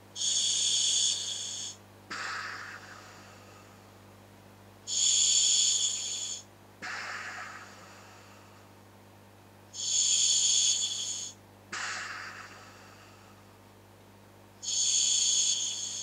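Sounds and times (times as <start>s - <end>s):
whistling regulator hiss: 0.2s - 2.8s, 4.9s - 7.4s, 9.8s - 12.4s, 14.6s - 16.0s.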